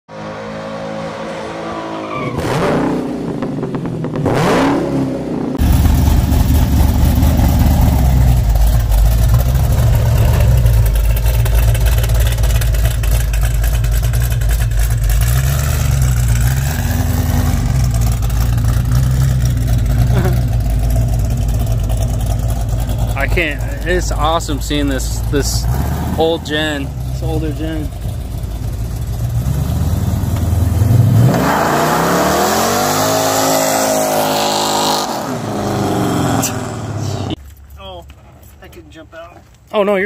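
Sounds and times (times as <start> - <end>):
car engine exhaust rumble: 2.9 - 33.4.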